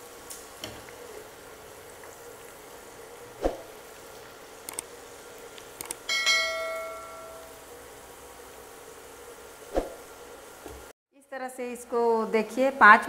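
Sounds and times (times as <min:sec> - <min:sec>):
bell-like metallic ring: 0:06.1 - 0:07.5.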